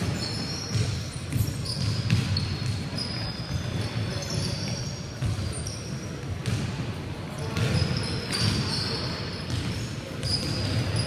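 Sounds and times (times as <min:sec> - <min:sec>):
sneakers squeaking: 0:00.0 - 0:11.0
basketball dribbling on wooden floor: 0:00.6 - 0:03.8.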